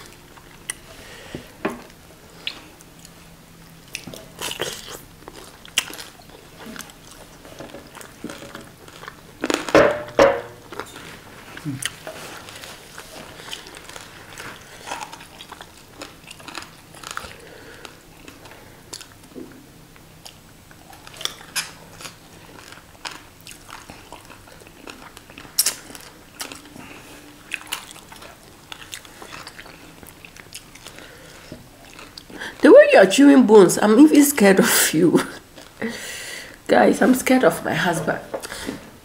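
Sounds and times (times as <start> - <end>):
chewing crisp fried fish: 2.3 - 9.7, 10.6 - 32.7.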